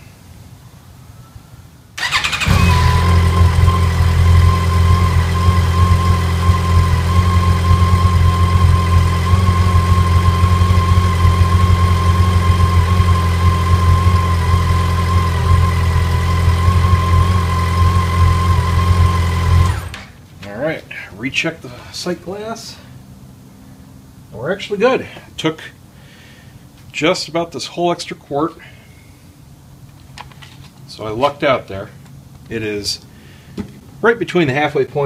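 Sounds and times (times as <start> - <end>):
electric starter cranking: 2.0 - 6.4, 14.0 - 20.1
motorcycle engine idling: 2.0 - 20.0.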